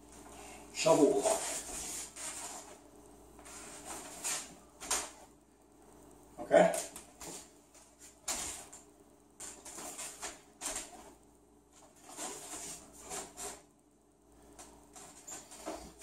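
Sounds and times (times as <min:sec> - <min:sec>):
bare feet shuffling on wood floor: 0:01.1 - 0:02.8, 0:06.8 - 0:11.2, 0:11.8 - 0:13.6
uniform rustling: 0:06.8 - 0:11.2, 0:11.8 - 0:13.7.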